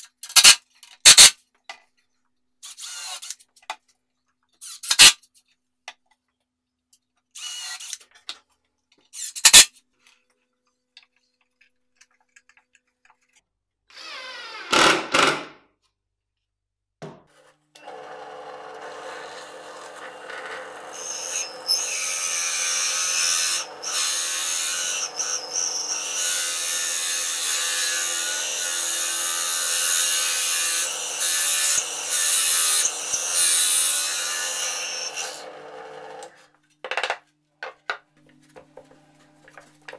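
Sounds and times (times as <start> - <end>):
drill press motor hum: 17.8 - 22.9
hole saw cutting plywood: 17.8 - 36.4.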